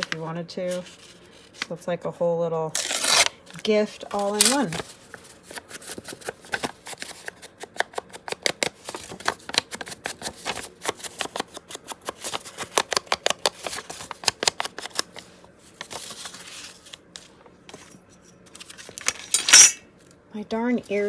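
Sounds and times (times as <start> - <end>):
paper clicks taps and rustles: 5.5 - 16.1.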